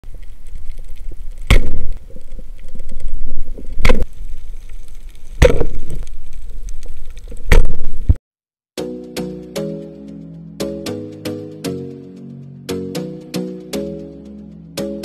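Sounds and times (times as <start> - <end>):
loud sharp cracks: 1.4 - 1.9.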